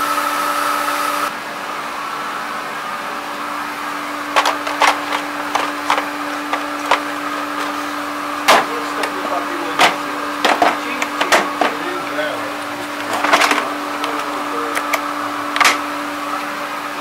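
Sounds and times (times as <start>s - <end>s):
low mechanical hum: 0.0s - 17.0s
clicks handling plastic case: 4.4s - 7.8s.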